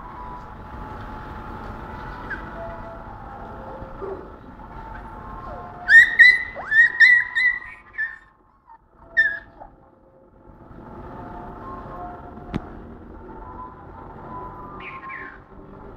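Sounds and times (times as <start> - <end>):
dog whining and yelping: 2.2 - 2.8, 4.0 - 9.9.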